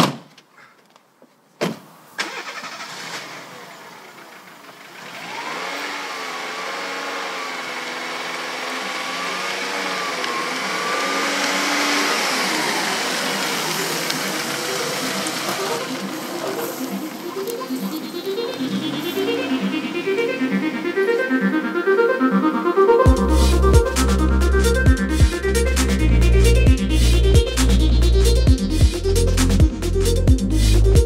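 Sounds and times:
car engine starting and running: 2.2s - 31.0s.

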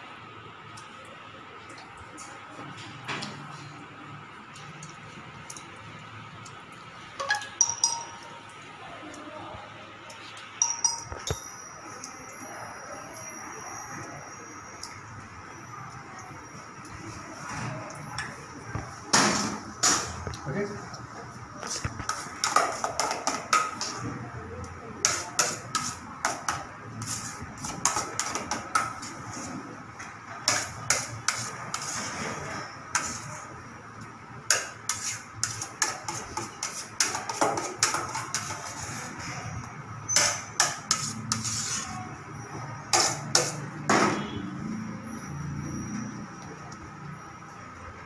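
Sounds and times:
utensils clinking against bowls: 7.2s - 8.6s, 10.1s - 12.3s, 25.0s - 29.4s, 34.5s - 42.1s, 42.8s - 43.8s.

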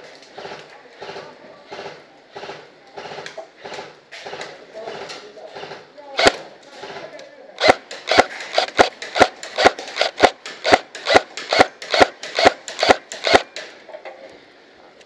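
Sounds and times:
airsoft rifle firing single shots: 7.6s - 13.7s.

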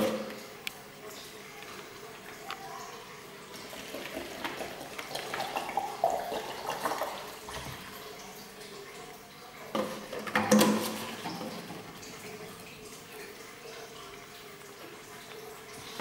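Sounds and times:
water pouring into blender jar: 3.5s - 8.2s.

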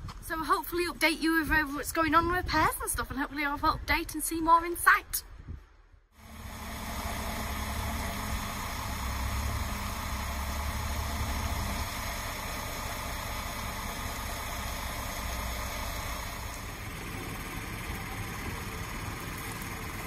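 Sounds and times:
diesel engine idling: 6.2s - 20.0s.

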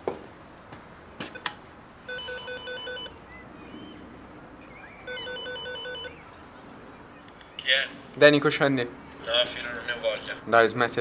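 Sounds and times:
intercom pulsing electronic beep: 4.6s - 6.3s.

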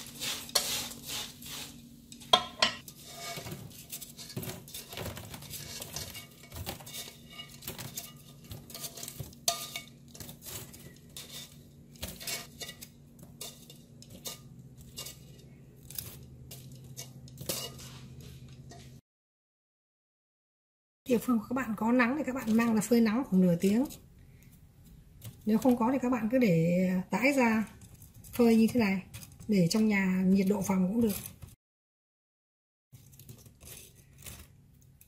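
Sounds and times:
utensil scraping frying pan: 0.0s - 19.0s, 27.2s - 31.6s, 33.0s - 34.6s.

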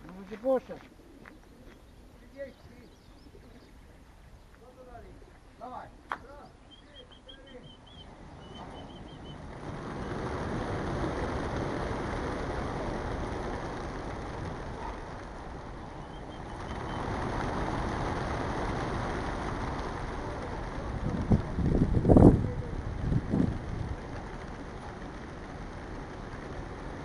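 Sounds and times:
pigeons' massed wingbeats: 6.4s - 27.0s.

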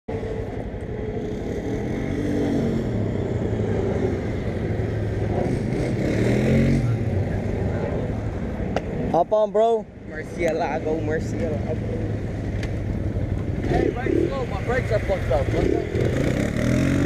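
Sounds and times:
motorcycle engine revving: 12.9s - 17.0s.

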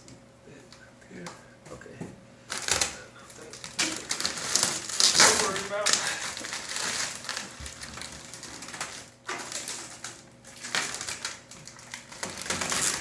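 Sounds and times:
plastic film crinkling as peeled: 2.5s - 13.0s.

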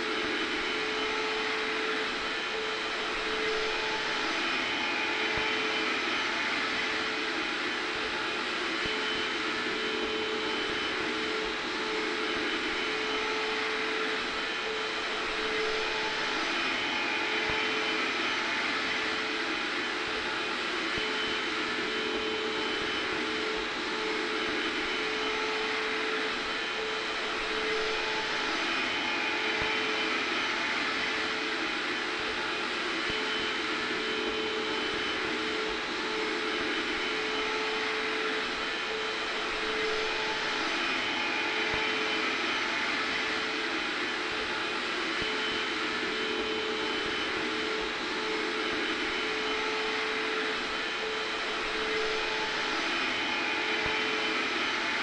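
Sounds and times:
hair dryer blowing: 0.0s - 55.0s
vacuum cleaner running: 0.0s - 55.0s.

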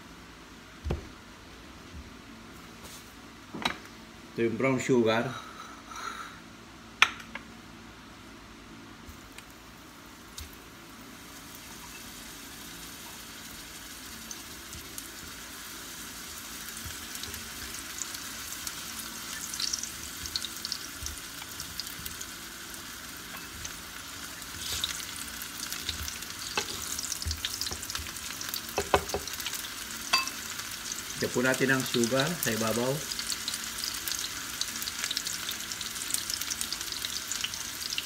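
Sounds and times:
sweet potato sizzling in oil: 9.1s - 38.0s.

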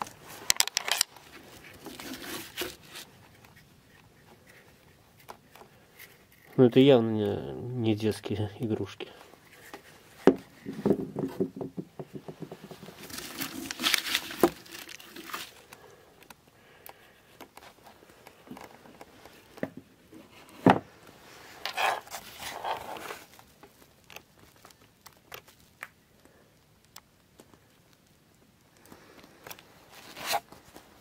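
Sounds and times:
clothing rustling and crinkling: 0.0s - 6.6s, 12.3s - 26.4s, 27.3s - 31.0s.

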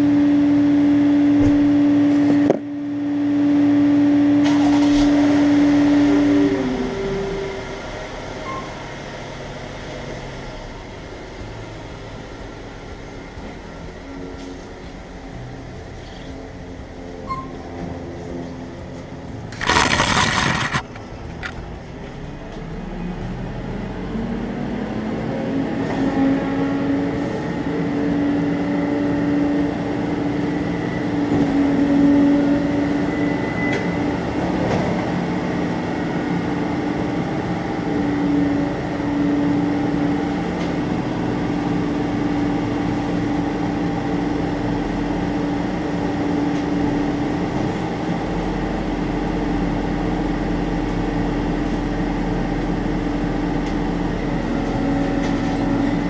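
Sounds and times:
truck engine droning hum: 0.0s - 56.0s.

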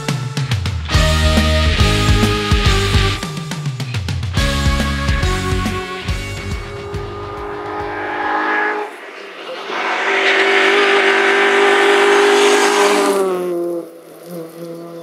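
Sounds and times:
rock music: 0.0s - 10.9s.

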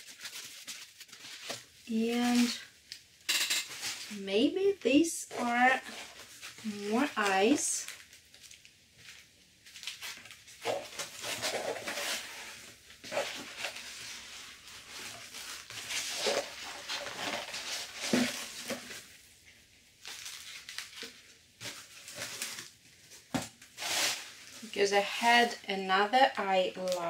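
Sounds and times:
paper rustling and crinkling: 0.0s - 3.0s, 5.4s - 19.2s, 20.0s - 24.7s.

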